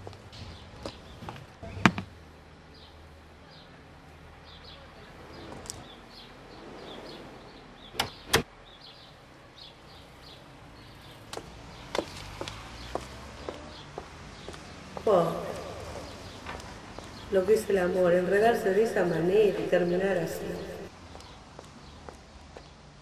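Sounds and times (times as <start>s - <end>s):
birds chirping faintly: 0.0s - 23.0s
door latch clicks: 7.9s - 8.5s.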